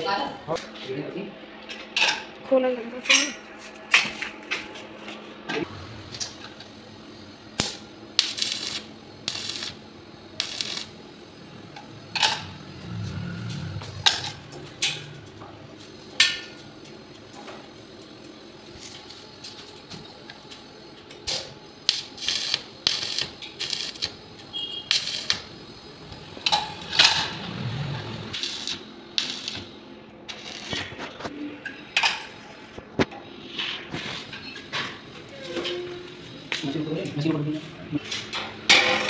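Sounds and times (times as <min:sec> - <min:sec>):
welding clicks and crackles: 0:07.6 - 0:11.0, 0:18.0 - 0:29.7, 0:30.3 - 0:31.3.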